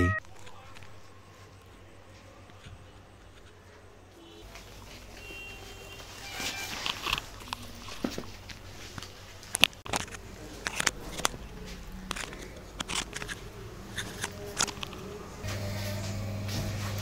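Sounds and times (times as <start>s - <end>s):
bags rustling: 4.4s - 13.0s.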